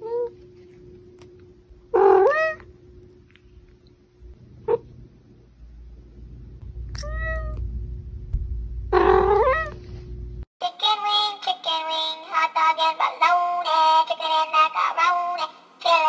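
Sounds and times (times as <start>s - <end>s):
cat meowing: 2.0s - 2.7s, 7.0s - 7.6s, 8.9s - 9.8s.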